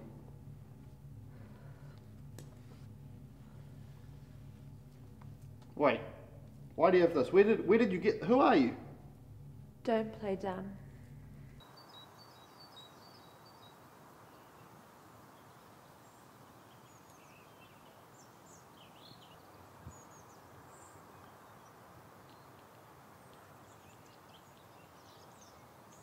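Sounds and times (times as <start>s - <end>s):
low hiss of background noise: 0.0s - 26.0s
small birds chirping: 11.6s - 26.0s.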